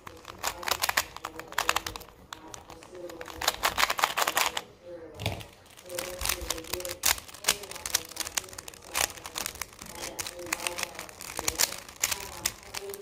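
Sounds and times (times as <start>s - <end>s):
puzzle cube plastic clicking: 0.0s - 4.6s, 5.2s - 13.0s.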